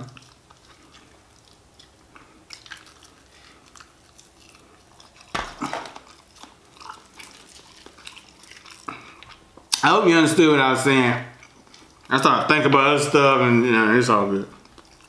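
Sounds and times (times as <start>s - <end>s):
quiet chewing: 0.0s - 9.8s, 11.3s - 12.2s, 14.4s - 15.0s
crunching fried chicken: 0.0s - 9.9s, 14.2s - 15.0s.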